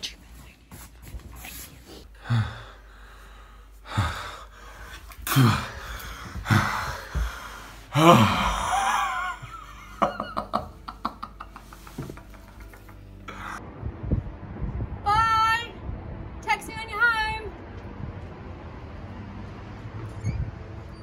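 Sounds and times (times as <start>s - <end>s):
man gasping and groaning: 2.1s - 9.2s
man laughing: 8.0s - 13.0s.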